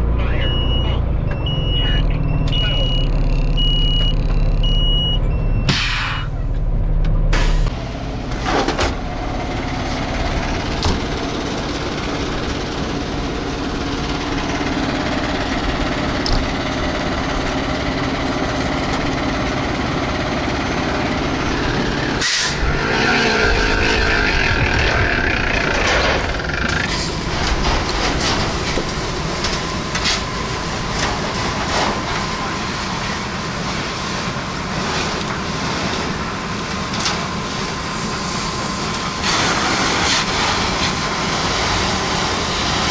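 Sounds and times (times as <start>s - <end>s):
diesel engine rumbling: 0.0s - 42.9s
knocks and clanks: 24.4s - 30.2s.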